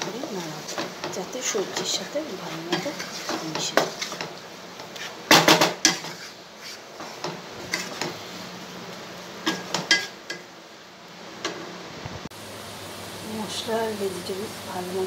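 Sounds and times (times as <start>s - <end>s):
spatula scraping frying pan: 0.0s - 8.6s, 9.3s - 10.4s.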